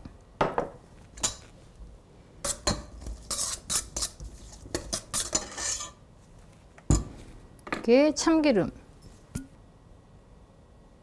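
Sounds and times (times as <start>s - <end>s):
utensils scraping metal bowl: 2.5s - 6.0s.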